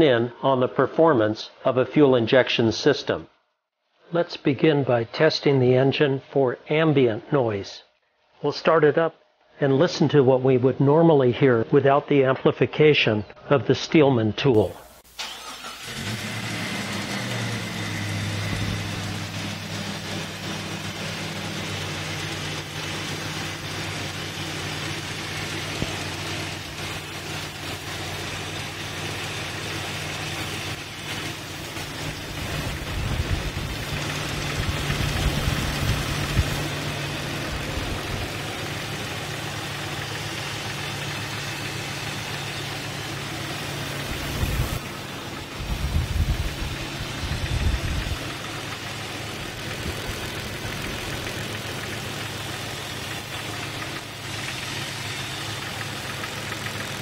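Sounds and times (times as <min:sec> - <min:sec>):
engine idling with a knock: 0:45.8 - 0:57.0.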